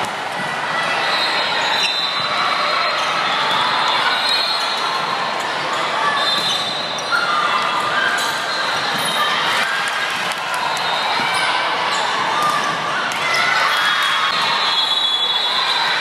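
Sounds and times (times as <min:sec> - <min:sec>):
voices echoing in gym: 0:00.0 - 0:16.0
sneakers squeaking on floor: 0:01.0 - 0:09.5.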